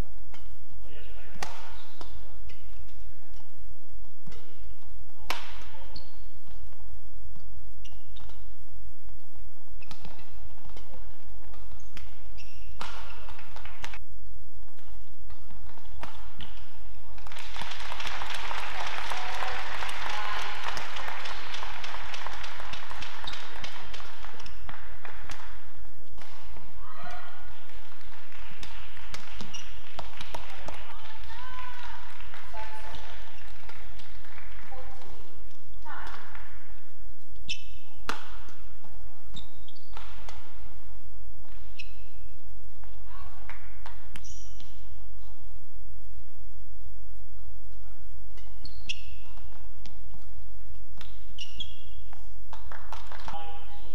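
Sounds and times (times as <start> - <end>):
racket striking shuttlecock: 0.2 - 3.6, 4.2 - 9.2, 9.8 - 14.0, 14.6 - 16.8, 22.2 - 30.8, 35.0 - 42.1, 48.3 - 53.3
shoes squeaking on court: 1.5 - 3.5, 4.3 - 6.8, 7.4 - 14.0, 14.6 - 16.8, 22.7 - 26.7, 29.1 - 31.0, 37.3 - 40.7, 41.4 - 43.0, 43.8 - 45.4, 48.3 - 53.0
crowd noise: 16.7 - 35.8.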